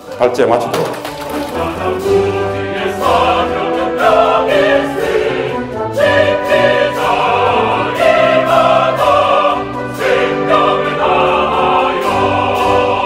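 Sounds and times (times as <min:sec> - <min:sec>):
choir singing: 0:00.0 - 0:13.0
orchestral music: 0:00.0 - 0:13.0.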